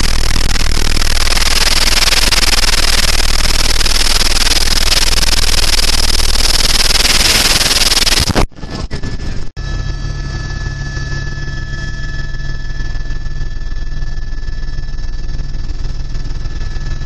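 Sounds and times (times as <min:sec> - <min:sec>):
helicopter cabin noise: 0:09.0 - 0:17.0.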